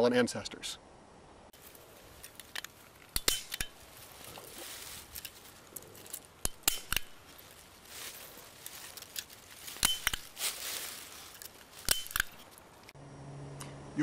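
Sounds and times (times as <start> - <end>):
steel rings clinking: 3.2 - 12.7.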